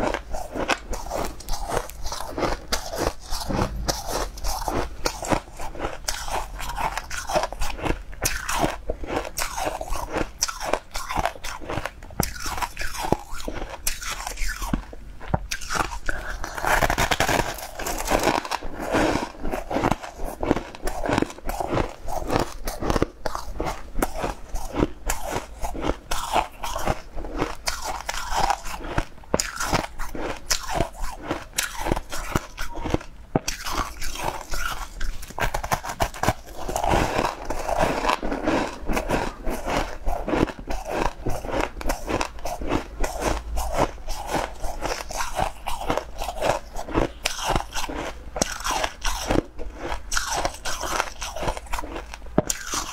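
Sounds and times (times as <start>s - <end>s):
person chewing crunchy food: 0.0s - 52.9s.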